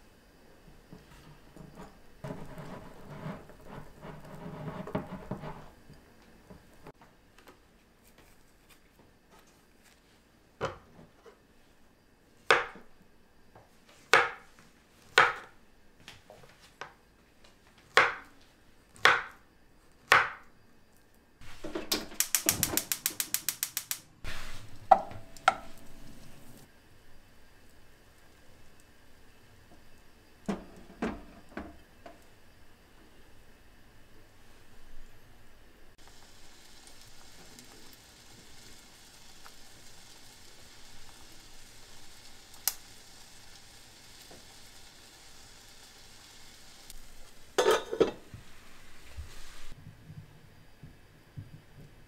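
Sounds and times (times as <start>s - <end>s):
knife chopping on wooden board: 15.1s - 15.5s, 17.9s - 18.2s, 19.0s - 19.4s
gas stove igniter clicking: 21.8s - 24.2s, 42.5s - 42.9s.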